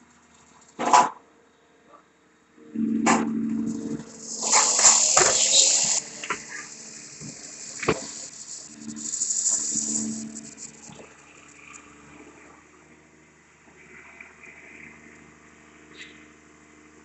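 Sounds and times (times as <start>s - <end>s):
excavator engine and hydraulics: 2.7s - 12.9s
hydraulic hissing: 3.6s - 11.8s.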